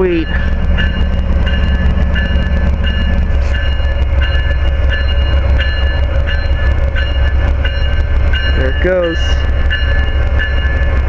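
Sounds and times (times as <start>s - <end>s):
high ringing tone: 0.0s - 10.9s
locomotive engine rumble: 0.0s - 11.0s.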